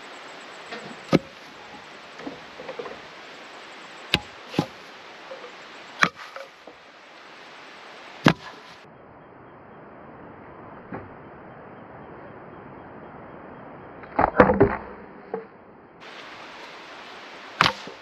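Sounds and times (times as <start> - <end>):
firewood logs dropped on ground: 0.7 - 3.2, 4.1 - 5.4, 6.0 - 6.8, 8.2 - 8.8, 14.2 - 15.0, 17.6 - 18.0.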